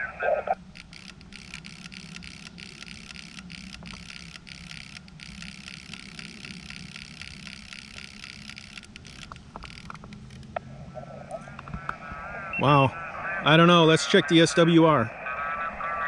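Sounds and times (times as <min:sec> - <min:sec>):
steady radio hiss: 0:00.0 - 0:16.0
antenna tuner relays clicking: 0:00.6 - 0:10.6.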